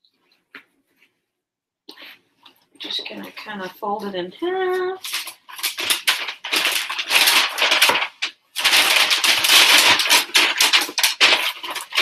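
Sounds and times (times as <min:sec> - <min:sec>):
mailer bag crinkling: 0:04.6 - 0:12.0.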